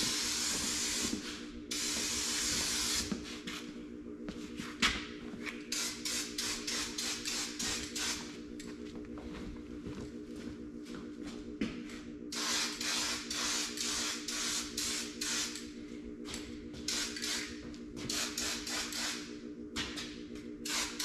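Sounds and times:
spray paint can hissing: 5.7 - 8.2, 12.4 - 15.6, 18.1 - 19.2, 20.6 - 21.0.

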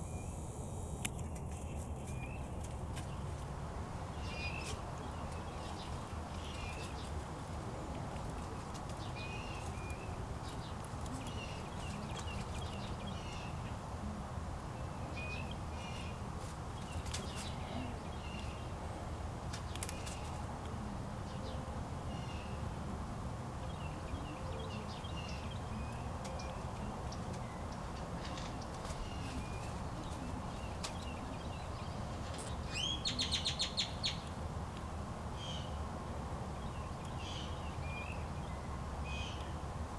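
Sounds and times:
low outdoor rumble: 0.0 - 39.9
small birds chirping: 4.1 - 13.8, 14.8 - 18.9, 23.6 - 34.4.

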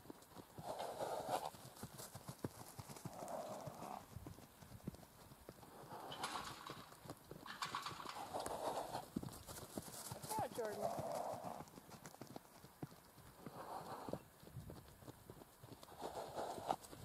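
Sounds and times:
horse hoofbeats: 0.0 - 17.0
horse breathy snorts: 0.6 - 1.5, 5.6 - 6.6, 8.0 - 9.1, 13.5 - 14.2, 15.9 - 16.8.

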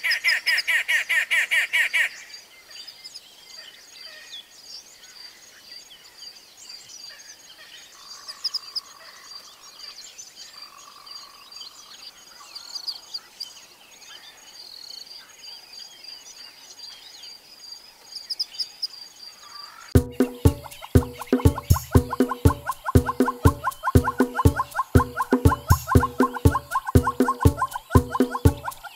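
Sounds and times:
bird chirps and calls: 19.9 - 28.9
loud music with strong beat: 20.0 - 28.9.

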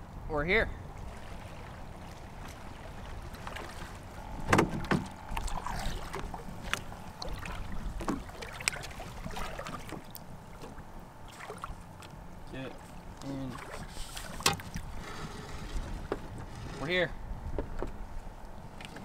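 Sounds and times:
low rumbling background: 0.0 - 19.0
knocks on boat hull: 4.4 - 5.2.

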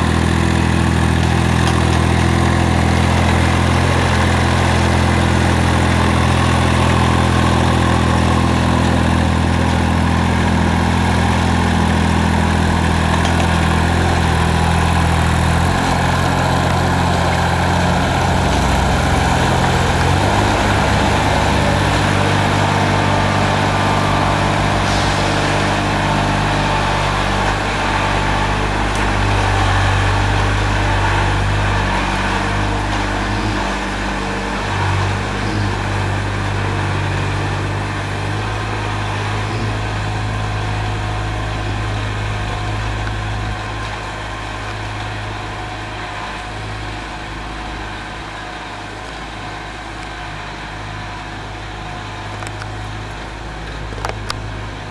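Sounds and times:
tractor engine running: 0.0 - 54.9.

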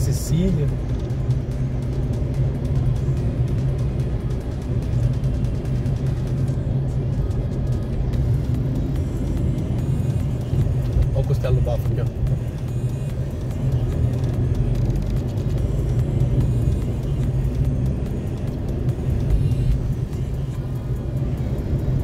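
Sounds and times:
car engine rumble: 0.0 - 22.0
tyres on road: 0.0 - 22.0.

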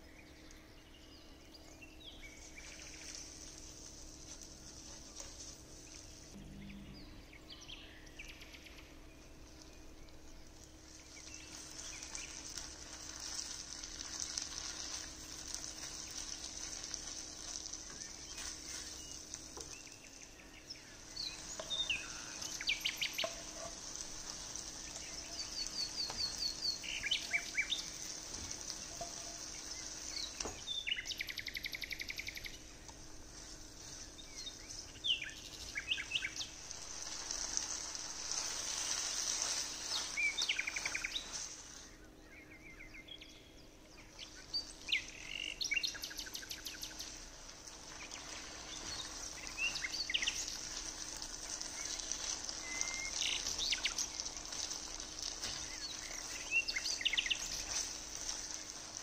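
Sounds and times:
food sizzling in frying pan: 10.2 - 19.8, 21.0 - 31.6, 35.7 - 41.8, 46.8 - 59.0.

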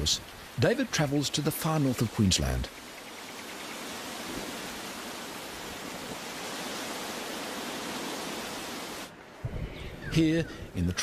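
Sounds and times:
hiss of water: 3.7 - 9.1.

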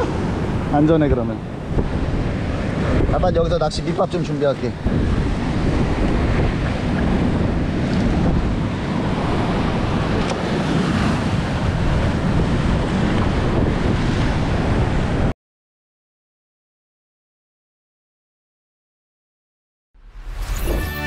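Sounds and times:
wind buffeting microphone: 0.0 - 15.3.

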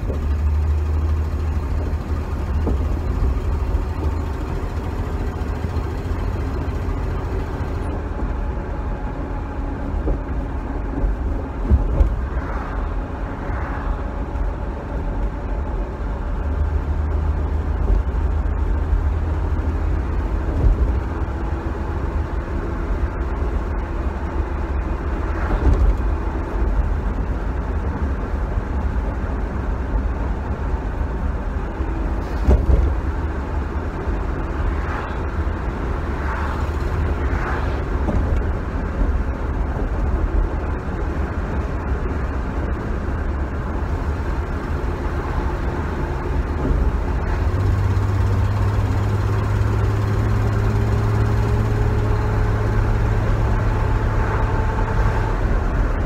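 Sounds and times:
car engine running: 0.0 - 56.0
road and wind noise: 0.0 - 56.0
road knocks: 1.8 - 3.4, 10.0 - 12.3, 32.3 - 33.0.

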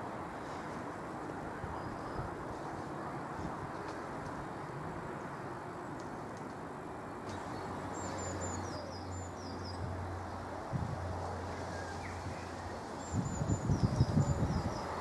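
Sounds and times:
small birds chirping: 7.2 - 10.4, 11.6 - 15.0.

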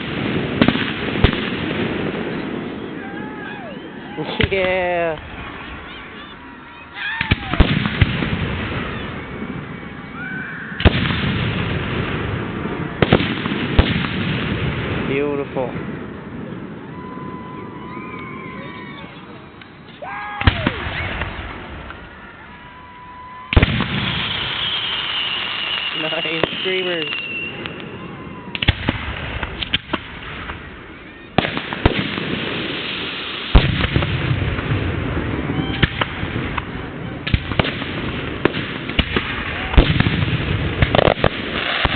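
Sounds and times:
loud firework bang: 0.0 - 3.1, 4.3 - 5.9, 7.1 - 10.0, 10.8 - 16.1, 20.4 - 22.1, 23.4 - 30.8, 31.4 - 41.9
rising firework whistle: 0.0 - 14.1, 15.8 - 41.9
fireworks rumbling and crackling: 0.0 - 41.9.

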